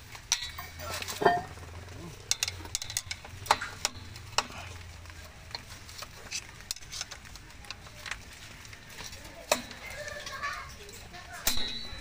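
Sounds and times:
light metal scratching: 0:00.2 - 0:12.0.

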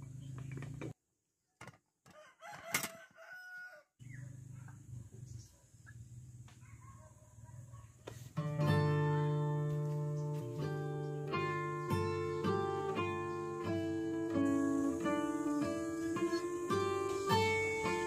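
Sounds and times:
outdoor background noise: 0:00.0 - 0:18.0
rooster crowing: 0:02.1 - 0:04.0
acoustic guitar music: 0:08.4 - 0:18.0.

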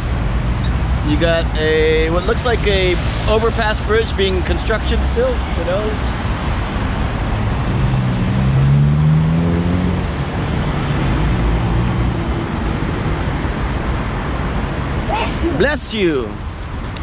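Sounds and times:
road traffic: 0:00.0 - 0:17.0
vehicle engine accelerating: 0:07.2 - 0:14.2.

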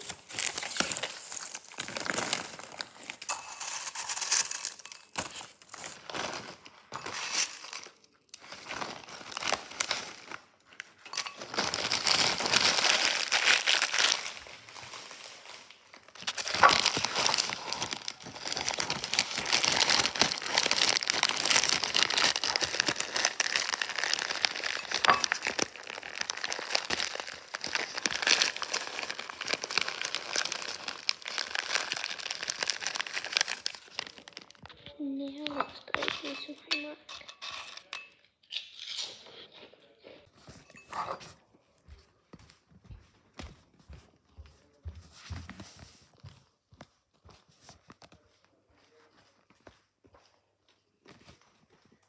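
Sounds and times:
snack bags crinkling: 0:00.0 - 0:36.4.

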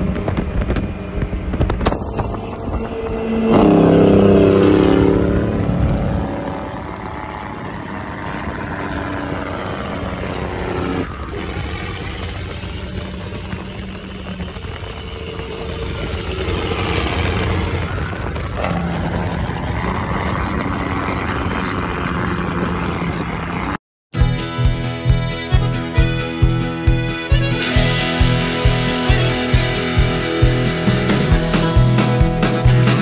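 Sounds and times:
wind noise: 0:00.0 - 0:23.8
truck diesel engine droning: 0:00.0 - 0:33.0
accordion music with a beat: 0:24.2 - 0:33.0.

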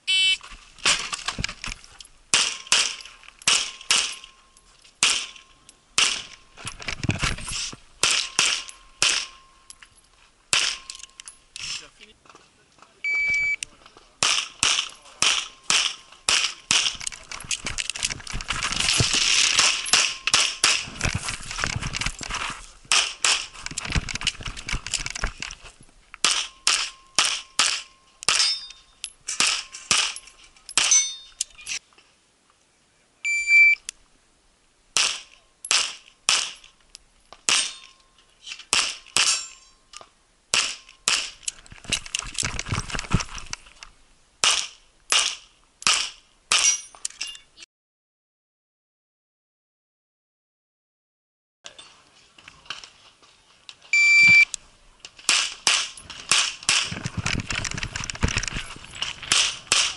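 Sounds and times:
pistol shots: 0:02.3 - 0:04.3.

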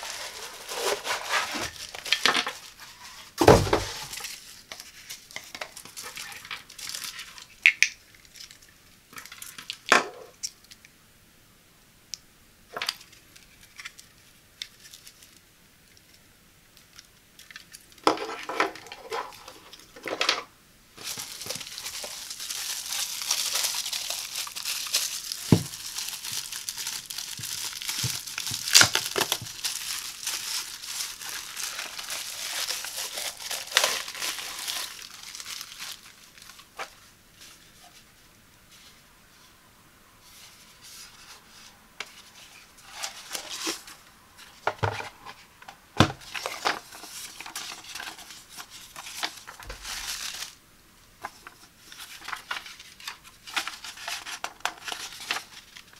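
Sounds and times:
packaging taps and rustles: 0:00.0 - 0:08.0, 0:21.0 - 0:37.0
bubble wrap crinkling: 0:00.0 - 0:10.8, 0:12.7 - 0:16.2, 0:21.0 - 0:39.0, 0:40.2 - 0:55.9.

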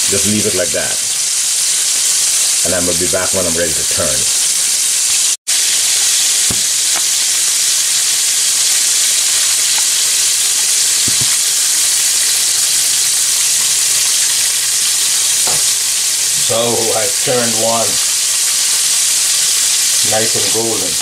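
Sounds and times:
fish sizzling in hot oil: 0:00.0 - 0:21.0
metal tongs knocking in pan: 0:15.4 - 0:15.8.

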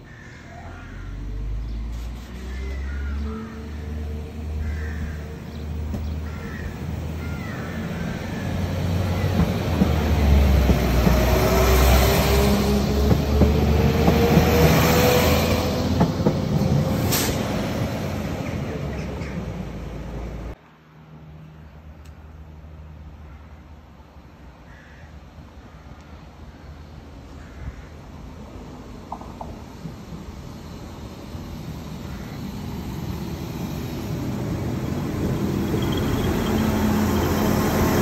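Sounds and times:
train engine rumble: 0:00.0 - 0:20.6, 0:25.4 - 0:38.0
rising whine of train: 0:00.0 - 0:22.2, 0:26.0 - 0:38.0
train wheels on rails: 0:05.7 - 0:20.5, 0:28.4 - 0:38.0.

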